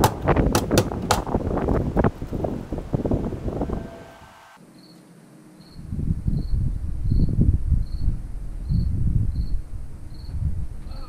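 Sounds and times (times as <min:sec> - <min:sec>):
wind rumbling on microphone: 0:00.0 - 0:04.6, 0:05.8 - 0:11.0
cricket chirping: 0:04.6 - 0:10.5.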